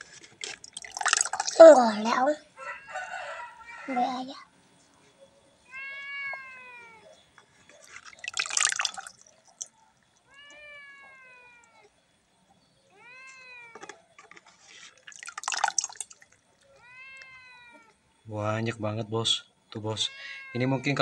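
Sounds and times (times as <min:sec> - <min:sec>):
water splashing into basin: 0:00.4 - 0:01.8, 0:07.9 - 0:09.8, 0:14.9 - 0:16.4
cat meowing: 0:05.6 - 0:07.2, 0:10.2 - 0:11.9, 0:12.9 - 0:13.8, 0:16.7 - 0:18.0, 0:20.0 - 0:21.0.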